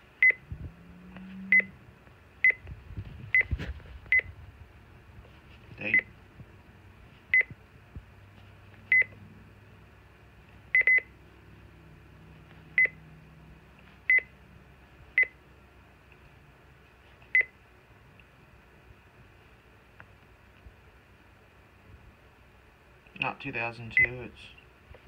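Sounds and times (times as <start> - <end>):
key-press beeps: 7.3 - 7.5, 8.9 - 9.2, 10.8 - 11.1, 12.8 - 13.0, 14.1 - 14.3.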